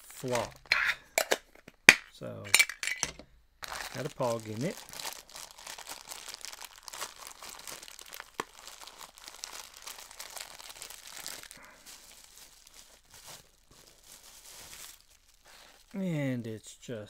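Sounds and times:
plastic bag crinkling: 3.6 - 16.0.

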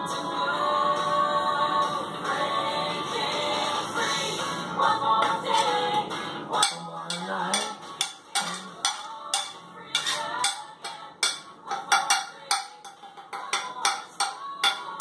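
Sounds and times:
fork scraping and tapping plate: 5.5 - 5.8, 6.6 - 15.0.

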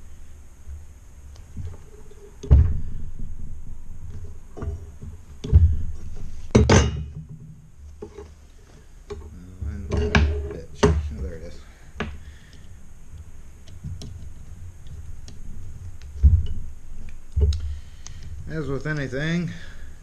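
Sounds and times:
metal parts thunking and clanking: 1.6 - 8.3, 9.1 - 12.2, 16.1 - 17.6.

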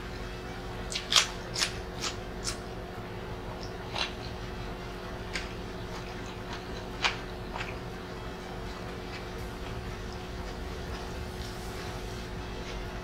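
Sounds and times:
cucumber crunching and chewing: 0.1 - 2.7, 3.5 - 11.2.

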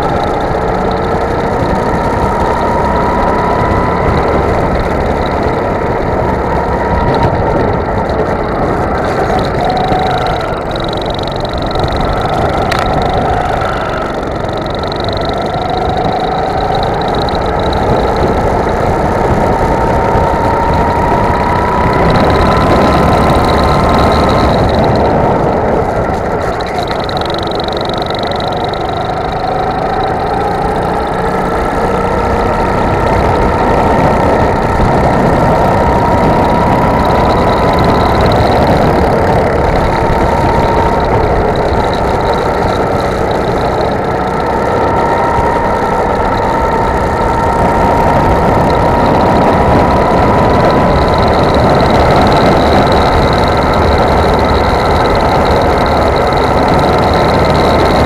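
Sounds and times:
go-kart engine running: 0.0 - 58.0.

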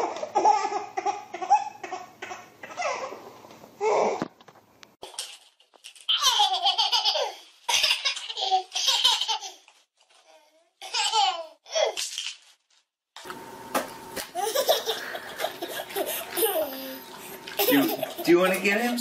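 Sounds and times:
toddler giggling: 14.4 - 18.4.

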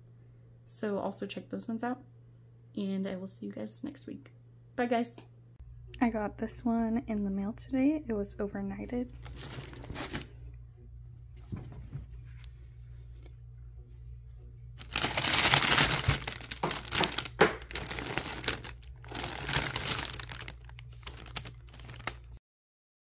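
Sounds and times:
low steady hum: 0.0 - 22.4
plastic bags crinkling: 9.1 - 10.5, 14.8 - 22.4.

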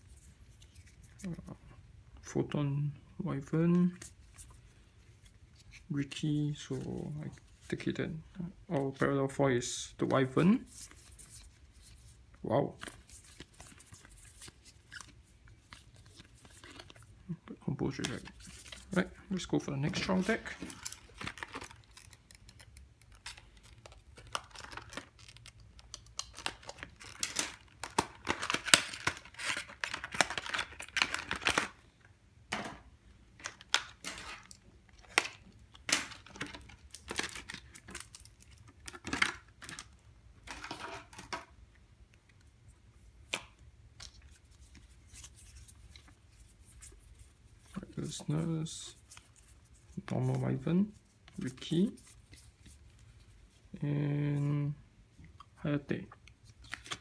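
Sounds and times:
packaging crinkling and tearing: 19.9 - 31.8, 33.4 - 41.3.

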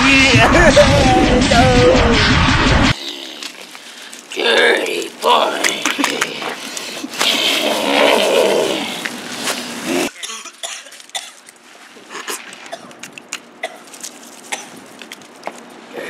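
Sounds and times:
person coughing: 10.1 - 11.4.

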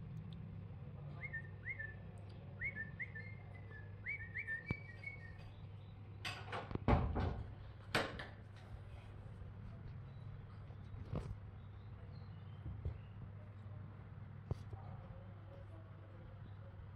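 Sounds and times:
high whistled chirps: 2.6 - 5.6.

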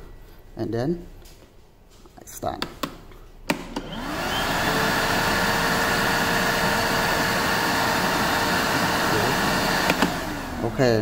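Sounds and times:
vacuum cleaner switch click: 2.6 - 5.4, 8.3 - 10.4
vacuum cleaner motor whine: 3.6 - 11.0.

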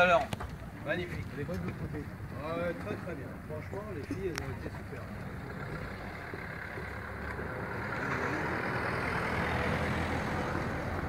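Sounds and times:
engine pulsing rumble: 3.2 - 11.0.

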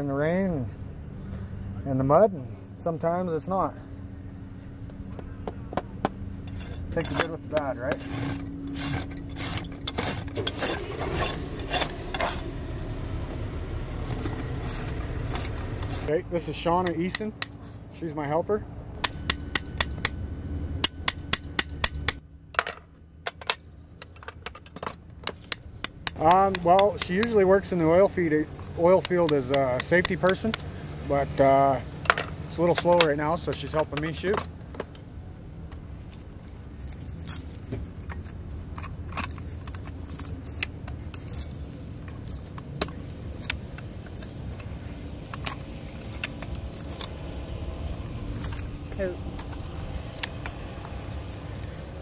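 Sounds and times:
hammer strikes on steel: 4.9 - 6.3, 16.9 - 17.6, 19.0 - 20.2, 20.8 - 22.2, 25.3 - 27.4, 29.0 - 30.7
pullers clinking on horseshoe: 4.9 - 7.8, 16.8 - 17.6, 19.0 - 20.2, 20.8 - 22.2, 25.2 - 27.5, 29.0 - 30.7
light metal ticks: 25.3 - 27.4, 29.1 - 30.7.

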